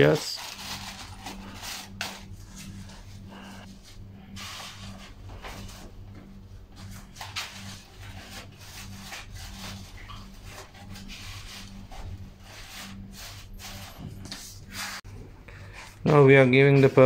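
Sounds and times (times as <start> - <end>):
stems rustling and scraping: 0.0 - 3.7
low steady hum: 0.0 - 17.0.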